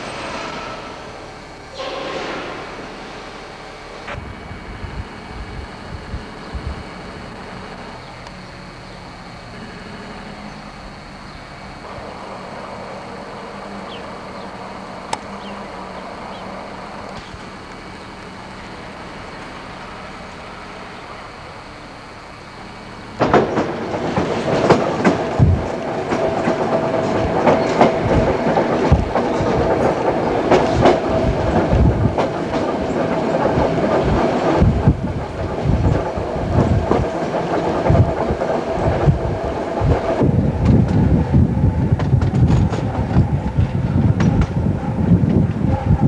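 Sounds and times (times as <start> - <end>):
steady train whine: 0.0 - 46.0
train wheels clattering over joints: 23.2 - 46.0.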